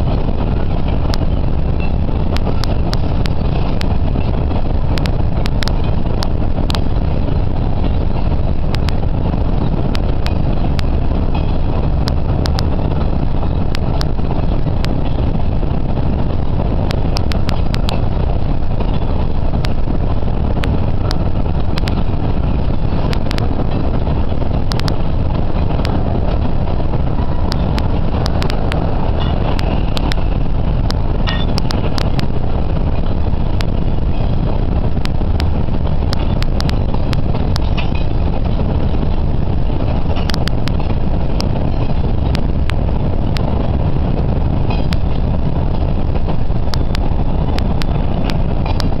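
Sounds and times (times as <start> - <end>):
car road and wind noise: 0.0 - 49.0
sharp clicks: 27.5 - 30.2.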